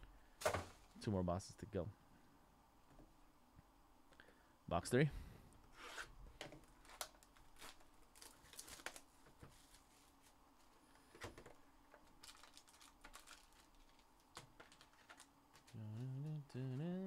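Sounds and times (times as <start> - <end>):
cardboard box and foil packs rustling: 6.6 - 10.8, 12.0 - 16.2.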